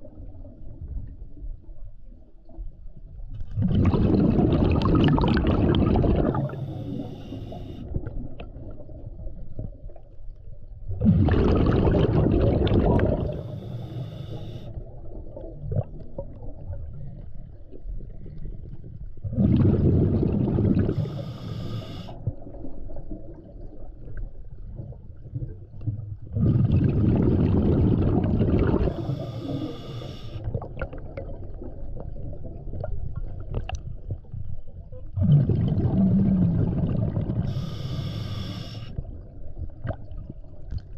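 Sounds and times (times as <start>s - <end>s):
rush of exhaled bubbles: 3.4s - 10.0s, 10.9s - 34.2s, 35.1s - 40.9s
regulator hissing inhale: 6.5s - 8.0s, 13.3s - 14.8s, 20.9s - 22.2s, 28.9s - 30.4s, 37.4s - 39.0s.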